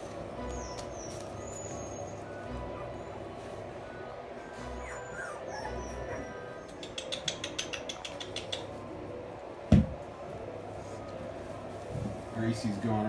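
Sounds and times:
puppy paws clicking: 0.0s - 1.8s, 5.9s - 9.0s
puppies whimpering: 0.2s - 8.9s.

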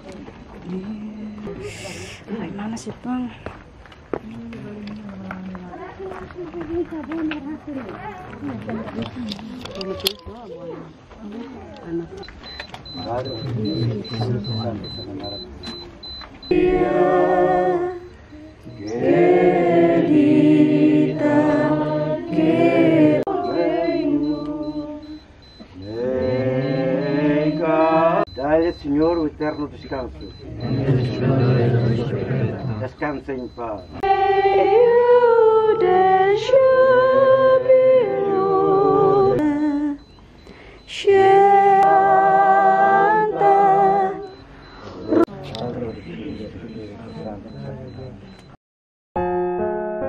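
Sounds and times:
voices chanting in long notes: 16.5s - 28.3s, 30.4s - 32.9s, 34.0s - 40.0s, 40.9s - 44.4s.

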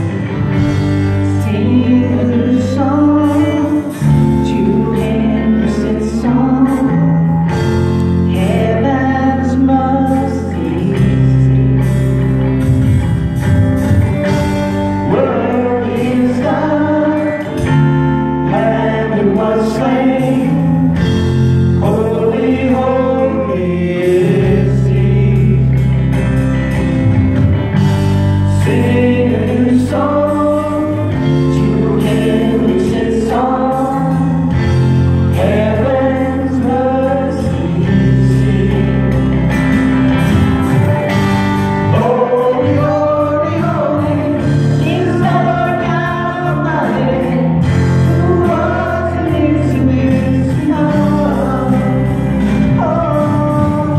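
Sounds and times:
people singing: 0.0s - 12.6s, 15.0s - 26.4s, 28.5s - 53.9s
acoustic guitar: 0.0s - 53.9s
low bass line: 0.0s - 53.9s.

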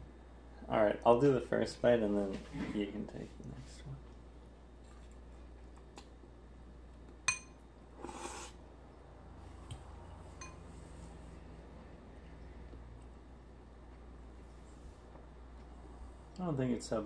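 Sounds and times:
metal utensil clinking on ceramic bowl: 10.4s - 10.6s.

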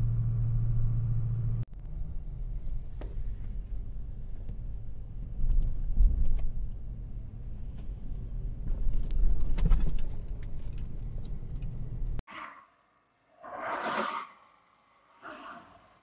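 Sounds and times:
car cabin road and engine rumble: 0.0s - 12.2s
metallic jingling and rattles: 8.7s - 12.2s.

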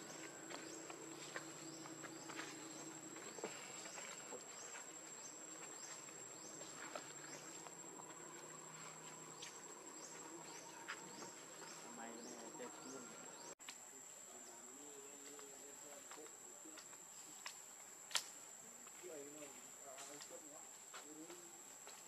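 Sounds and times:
insect high-pitched whine: 0.0s - 13.5s.

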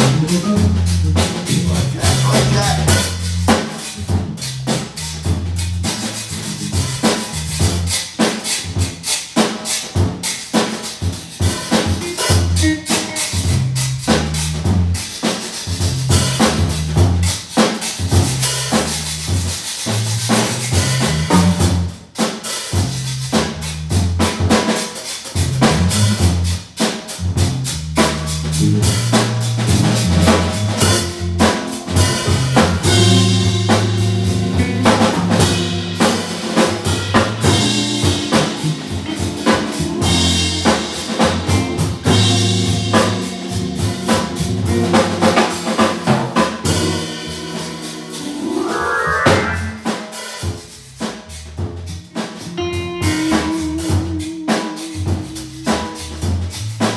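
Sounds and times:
organ: 0.0s - 5.1s, 28.1s - 50.3s
organ bass line: 0.0s - 8.0s, 11.0s - 15.1s, 15.7s - 17.4s, 18.0s - 22.0s, 22.8s - 24.6s, 25.4s - 56.9s
drum kit played busily: 0.0s - 56.9s
electric guitar: 30.2s - 47.8s, 52.2s - 56.1s.

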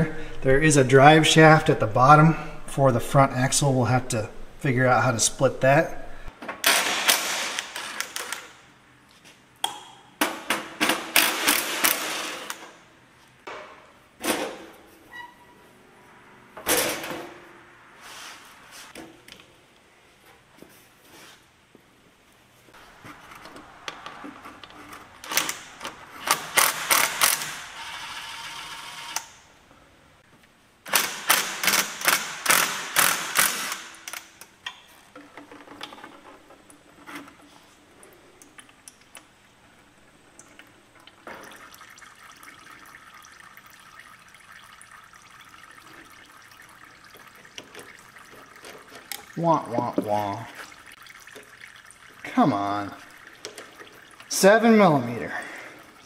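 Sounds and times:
fluid trickling into a bucket: 40.3s - 56.0s.

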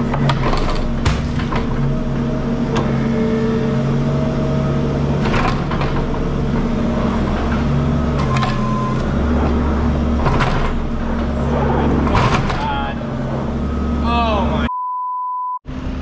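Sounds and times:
diesel engine running: 0.0s - 14.7s, 15.7s - 16.0s.

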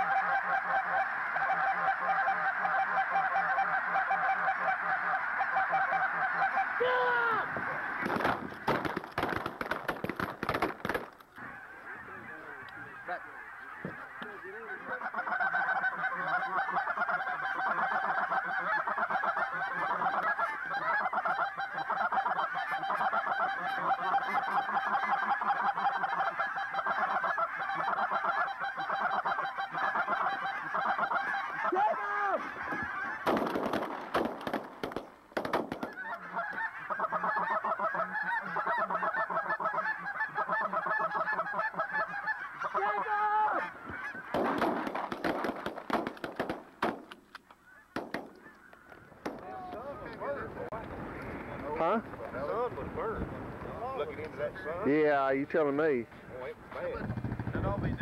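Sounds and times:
geese honking: 0.0s - 9.4s, 10.9s - 52.8s
crackling noise bursts: 7.5s - 11.8s, 32.6s - 36.6s, 43.8s - 54.6s, 56.6s - 58.0s.

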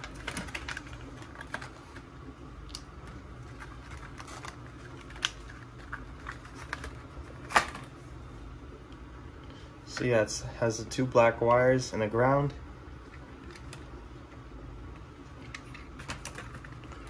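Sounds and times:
plastic packaging crackling: 0.0s - 2.0s, 2.7s - 7.9s.

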